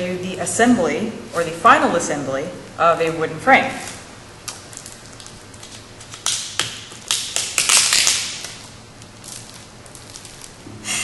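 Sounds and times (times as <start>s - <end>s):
plastic wrapping crinkling: 3.8s - 10.6s.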